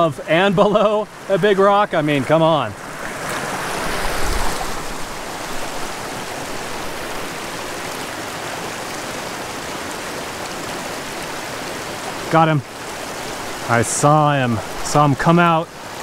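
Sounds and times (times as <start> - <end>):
creek running over rocks: 0.0 - 16.0.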